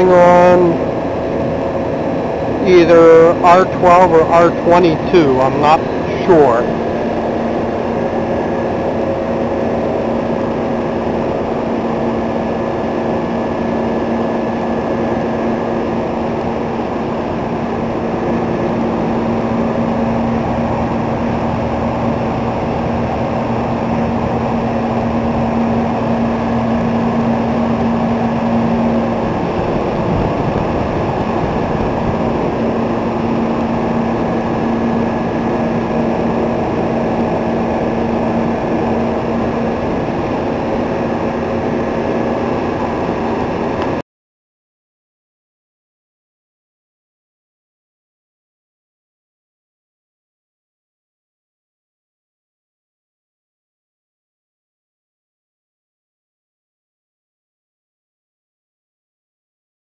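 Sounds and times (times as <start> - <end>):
refrigeration compressors droning: 0.0 - 44.0
steady hum: 0.0 - 44.0.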